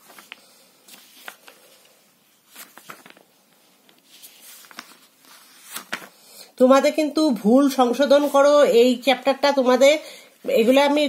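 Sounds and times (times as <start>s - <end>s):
paper pages rustling: 0.0s - 6.2s.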